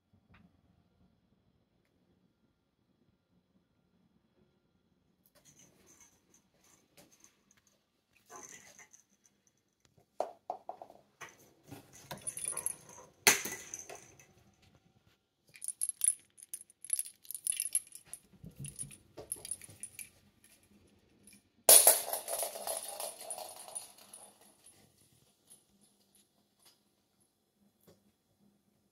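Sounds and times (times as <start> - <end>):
bells jingling in toy balls: 12.1 - 13.0, 15.6 - 20.1.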